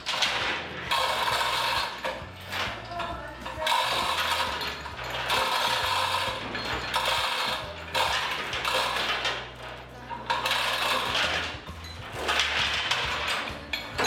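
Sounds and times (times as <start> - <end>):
chain rattling through hoist: 0.0 - 14.0
ratchet clicking: 0.0 - 14.0.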